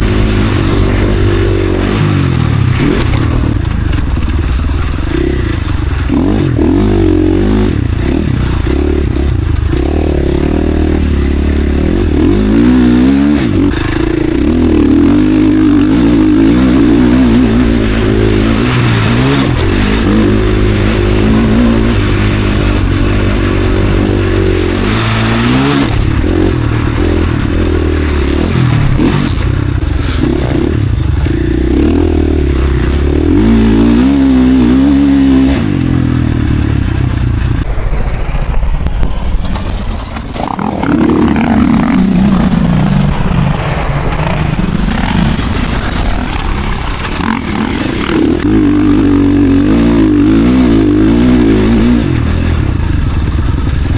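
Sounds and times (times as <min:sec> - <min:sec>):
motocross engine revving: 0:00.0 - 0:37.6, 0:40.2 - 0:53.9.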